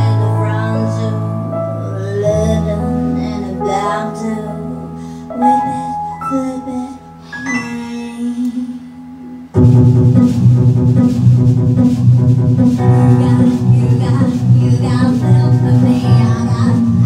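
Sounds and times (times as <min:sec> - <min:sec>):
woman singing: 0:00.0 - 0:09.0, 0:13.0 - 0:17.0
band with drums: 0:09.6 - 0:16.8.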